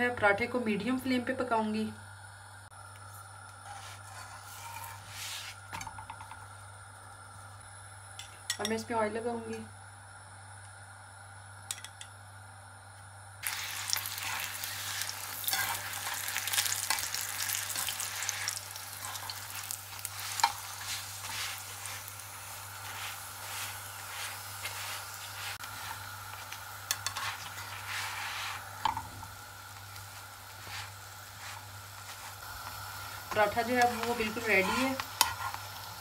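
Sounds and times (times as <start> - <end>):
oil sizzling on a griddle: 13.4 - 36.0.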